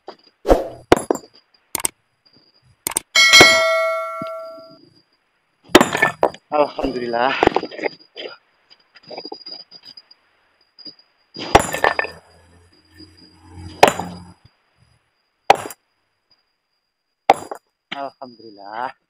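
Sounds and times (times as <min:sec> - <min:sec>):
hammer striking stone: 0:00.9 - 0:01.3, 0:03.2 - 0:04.7, 0:11.4 - 0:12.2, 0:13.8 - 0:14.3, 0:15.5 - 0:15.8, 0:17.3 - 0:17.6.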